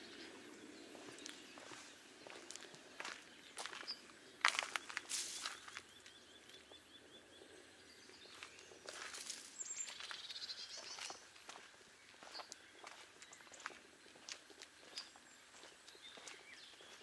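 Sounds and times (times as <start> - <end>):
footsteps: 1.0 - 5.9, 8.3 - 10.2, 10.8 - 17.0.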